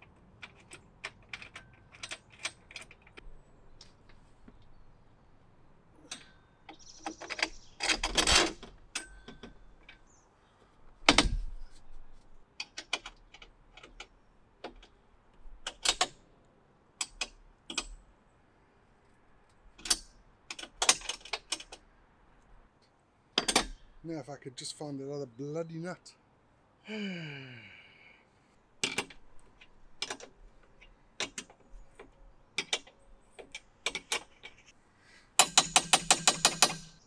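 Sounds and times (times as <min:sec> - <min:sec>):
nuts and bolts clinking: 0:00.0 - 0:04.8, 0:06.0 - 0:10.2, 0:12.5 - 0:16.2, 0:19.4 - 0:22.0, 0:23.3 - 0:24.0, 0:28.8 - 0:37.0.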